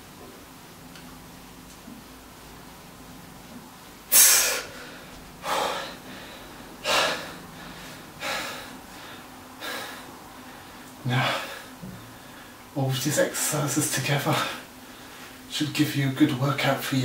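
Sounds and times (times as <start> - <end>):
man exhaling forcefully: 4.1 - 8.7.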